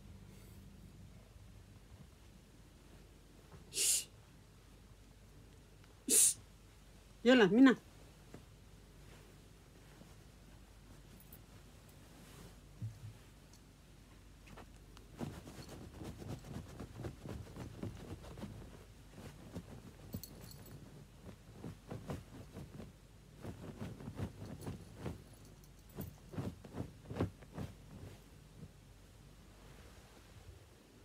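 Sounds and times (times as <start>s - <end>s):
bed sheet rustling: 7.9s - 13.5s, 14.5s - 30.8s
soft thumps: 12.7s - 13.3s.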